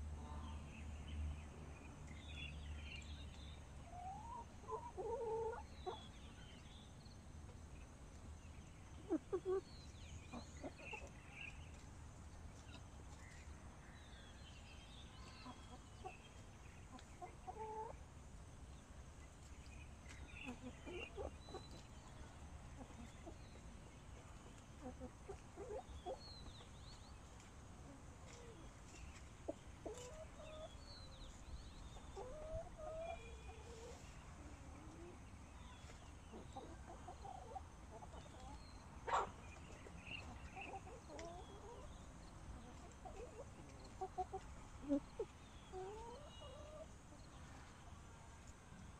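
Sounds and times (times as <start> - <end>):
hens clucking: 3.8 - 6.1, 8.9 - 9.7, 10.3 - 12.0, 15.4 - 18.0, 20.1 - 30.8, 31.9 - 35.2, 35.8 - 47.7.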